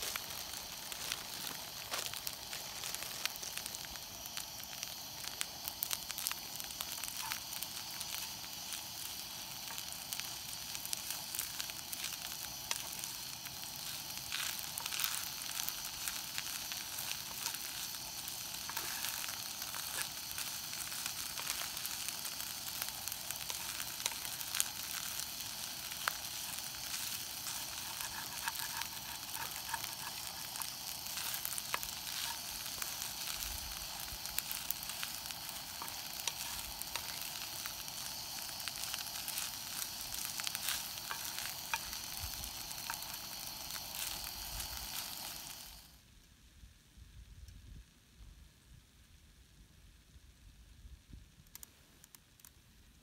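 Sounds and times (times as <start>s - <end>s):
food sizzling in a skillet: 0.0s - 46.0s
small clicks: 51.4s - 52.6s.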